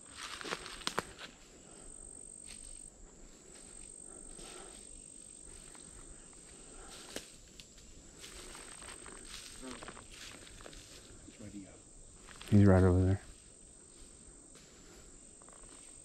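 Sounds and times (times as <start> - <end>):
footsteps in dry leaves: 0.0 - 1.5, 8.1 - 11.2
insects trilling: 0.0 - 16.0.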